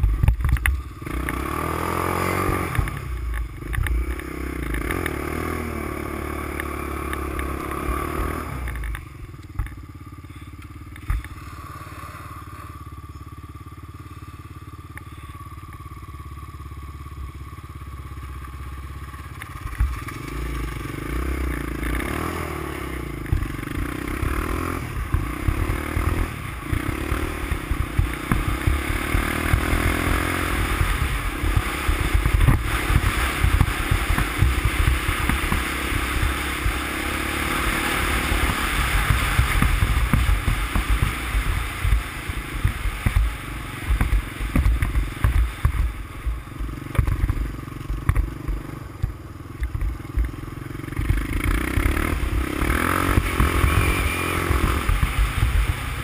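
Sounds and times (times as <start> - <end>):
quad bike engine running: 0.0 - 56.0
wind rumble on microphone: 22.4 - 47.5, 51.0 - 56.0.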